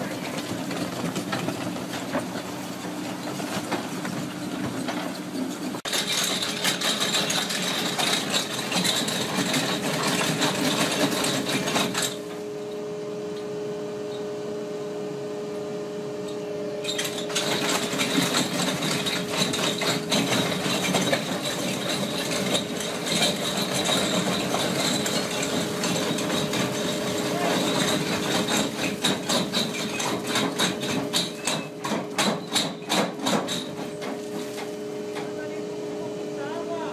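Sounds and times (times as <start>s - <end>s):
steady motor whine: 9.8s - 21.4s, 33.8s - 36.9s.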